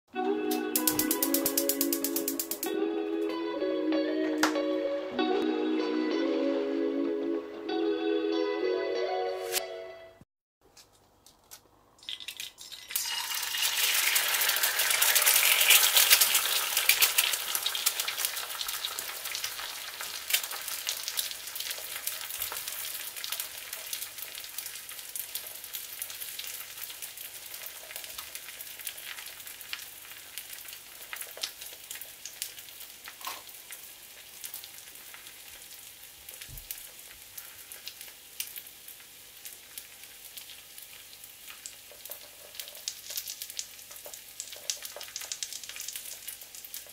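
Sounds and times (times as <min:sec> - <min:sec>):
egg sizzling in a pan: 0:00.7 - 0:02.7, 0:12.0 - 0:46.9.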